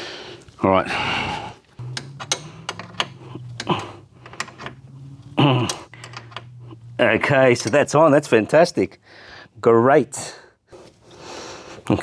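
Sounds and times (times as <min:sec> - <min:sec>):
steady low hum: 0:00.9 - 0:09.6
spanner clicking on screws: 0:01.8 - 0:04.8, 0:05.7 - 0:06.6
short vocal sound: 0:05.4 - 0:05.9.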